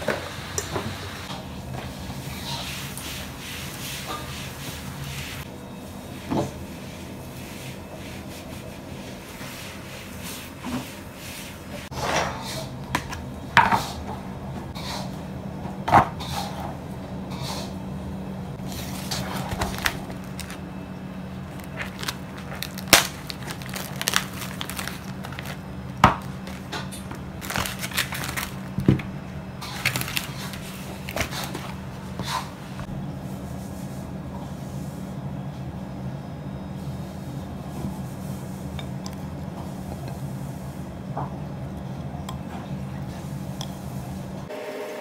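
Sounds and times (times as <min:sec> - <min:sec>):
plastic crinkling: 0:18.6 - 0:20.6, 0:21.4 - 0:26.8, 0:27.4 - 0:29.0, 0:29.6 - 0:31.7.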